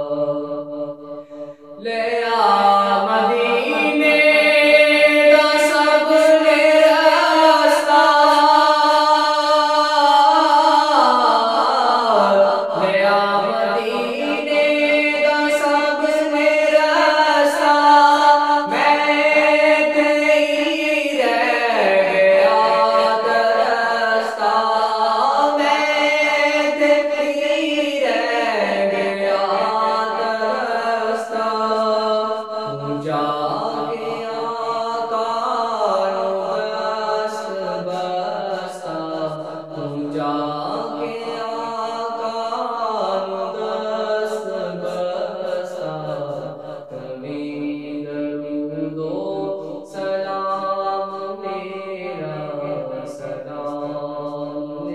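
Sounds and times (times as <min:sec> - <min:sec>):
man singing devotional song: 0:00.0 - 0:54.9.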